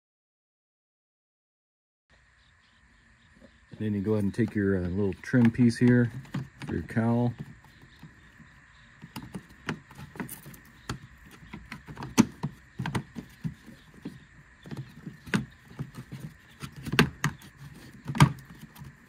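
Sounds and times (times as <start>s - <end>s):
plastic panel clacking: 4.1s - 19.0s.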